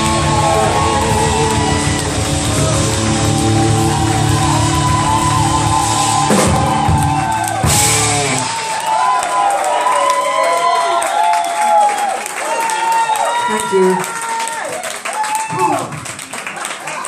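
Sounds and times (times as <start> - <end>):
live rock band playing: 0.0 - 8.8
crowd cheering: 0.0 - 17.0.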